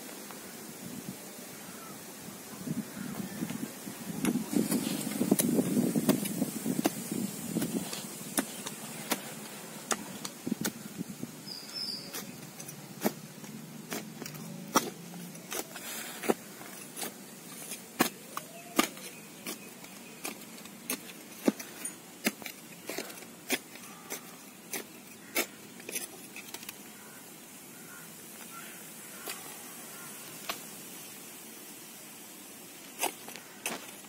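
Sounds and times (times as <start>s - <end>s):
metal tool scraping stony soil: 4.1s - 27.1s, 32.9s - 34.0s.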